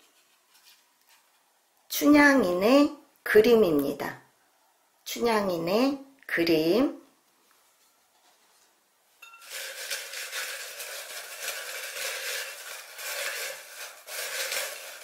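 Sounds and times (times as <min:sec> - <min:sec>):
light clinks against glass: 0:09.2 - 0:09.5
paper slips rustling: 0:09.4 - 0:15.0.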